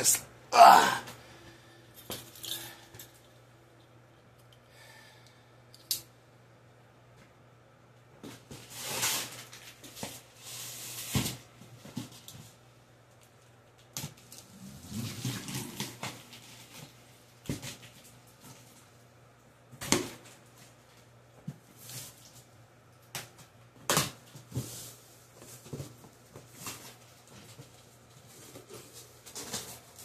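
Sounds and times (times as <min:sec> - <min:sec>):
cardboard packaging scraping and tearing: 0:08.6 - 0:11.4, 0:14.4 - 0:16.8.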